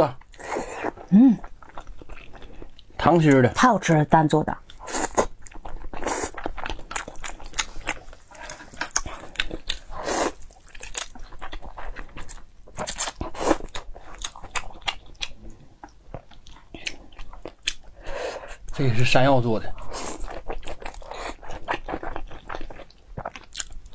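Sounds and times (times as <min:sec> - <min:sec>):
chewing and biting: 0:04.7 - 0:17.9, 0:19.8 - 0:23.9.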